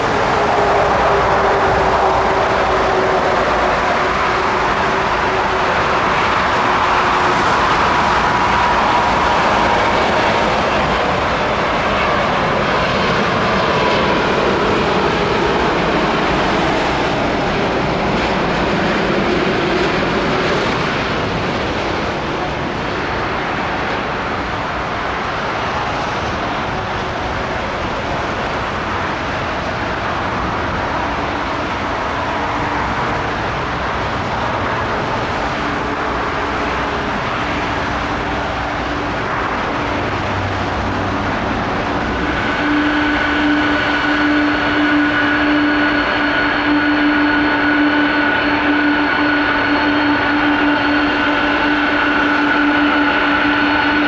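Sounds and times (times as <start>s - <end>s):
jet engine roar: 0.0s - 54.0s
jet engines whining at take-off: 0.0s - 54.0s.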